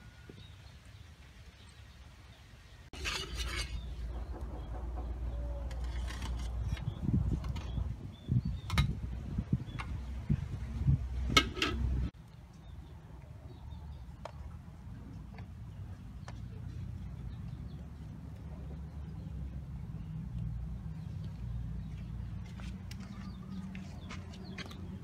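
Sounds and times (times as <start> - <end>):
metal spatula scraping steel tray: 3.0 - 4.4, 5.6 - 7.7.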